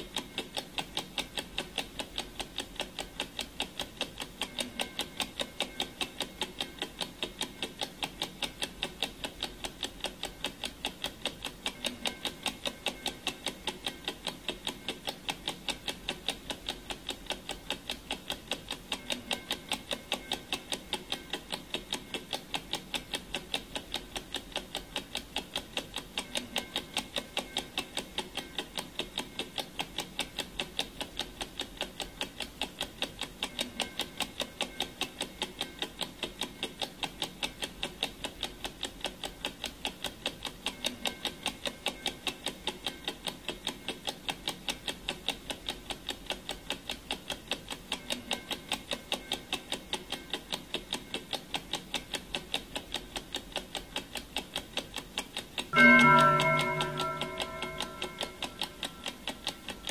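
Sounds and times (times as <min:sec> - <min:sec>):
clock ticking: 0:00.0 - 0:59.9.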